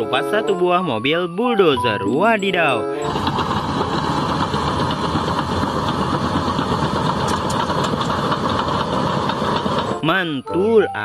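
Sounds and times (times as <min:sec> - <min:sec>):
bulldozer diesel engine running: 0:01.6 - 0:11.0.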